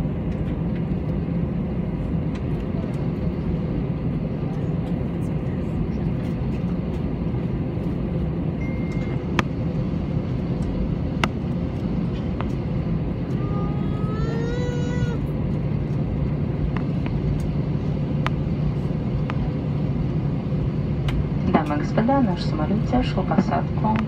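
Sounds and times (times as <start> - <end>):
engine rumble and hum: 0.0 - 24.0
wavering high-pitched tone: 8.6 - 9.3.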